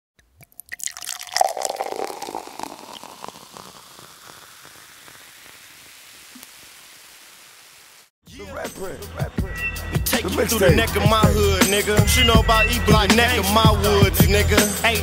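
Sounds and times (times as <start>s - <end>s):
liquid pouring and splashing: 0.2s - 6.4s.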